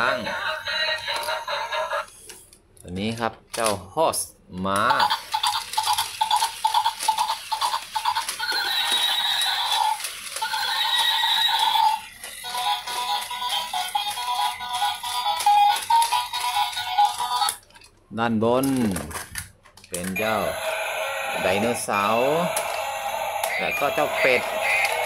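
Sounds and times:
toy mechanism clicking: 4.8s - 17.9s, 18.6s - 25.0s
electronic tune from toy speaker: 20.2s - 25.0s.

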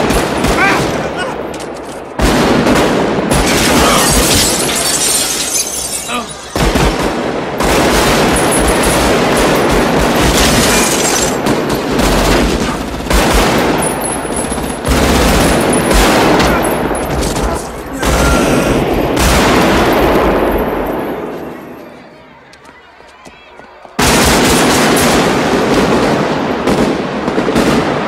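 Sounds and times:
automatic rifle fire: 6.6s - 14.0s, 14.8s - 16.8s.

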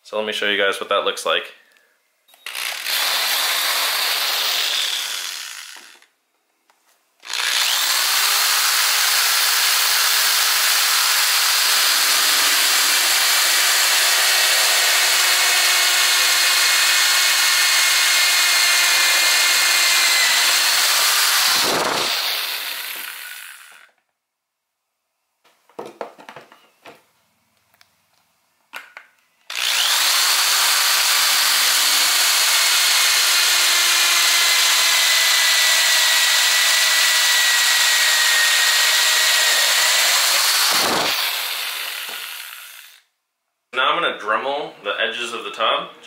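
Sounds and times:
drill cutting through plastic: 2.4s - 6.1s, 7.2s - 24.0s, 29.5s - 43.1s.

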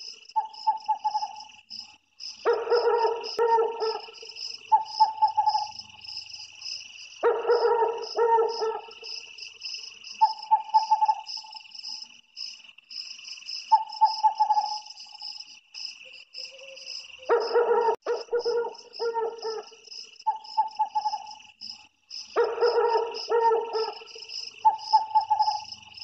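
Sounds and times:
insects chirring: 0.0s - 26.0s
owl calling: 0.4s - 1.5s, 2.5s - 5.8s, 7.2s - 9.0s, 10.1s - 11.6s, 13.7s - 14.9s, 16.5s - 21.4s, 22.4s - 25.7s.

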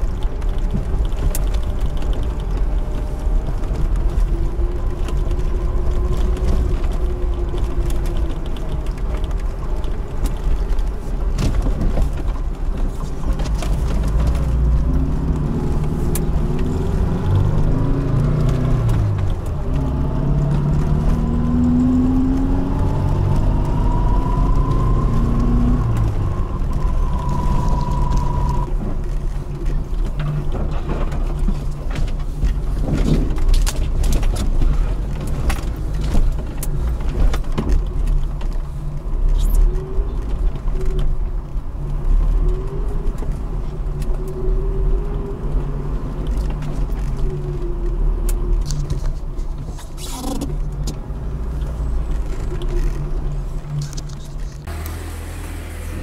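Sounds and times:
vehicle knocks and rattles: 0.0s - 23.8s, 28.2s - 39.2s
car engine under load: 0.0s - 56.0s
whine climbing in pitch: 19.6s - 28.7s.

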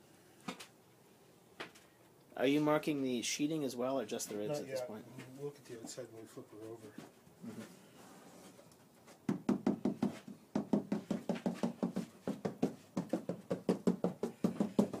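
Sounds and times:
knuckles knocking on wood: 9.3s - 15.0s.

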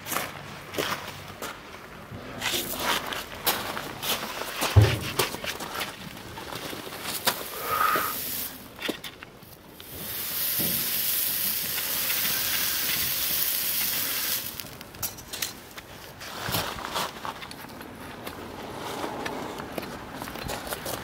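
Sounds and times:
hot horseshoe sizzling on hoof: 6.8s - 15.8s.

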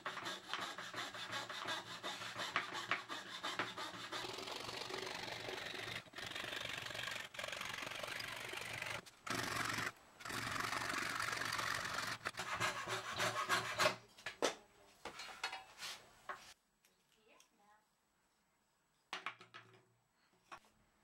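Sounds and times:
hand saw rasping through wood: 0.0s - 6.3s, 11.4s - 14.0s.

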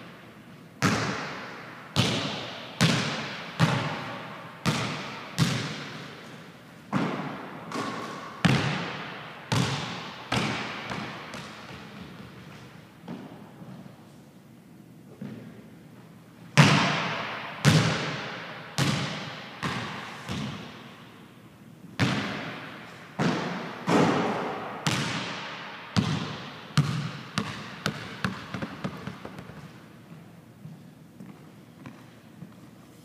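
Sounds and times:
basketball bouncing on hardwood floor: 0.8s - 1.3s, 2.0s - 6.0s, 6.9s - 12.3s, 16.6s - 18.2s, 18.8s - 20.7s, 22.0s - 22.5s, 23.2s - 25.4s, 26.0s - 29.7s.

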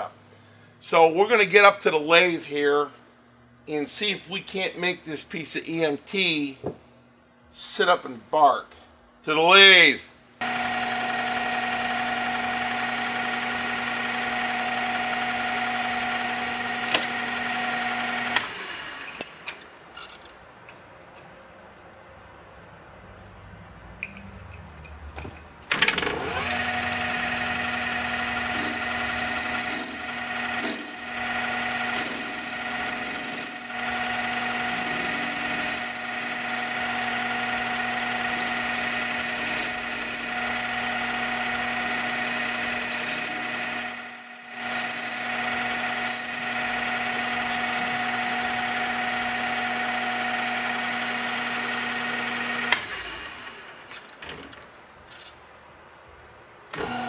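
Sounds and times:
metal lathe running: 10.4s - 19.2s, 26.0s - 53.5s, 56.8s - 57.0s
high-pitched cutting squeal: 26.3s - 49.0s.

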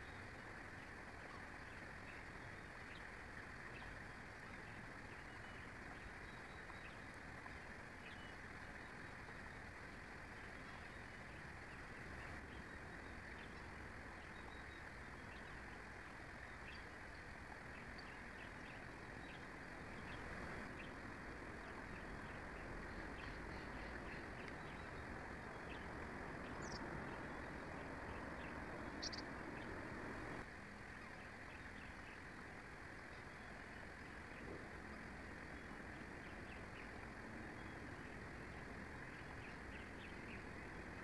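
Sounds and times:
wind hiss: 0.0s - 41.0s
sharp high bird chirps: 28.9s - 29.3s.

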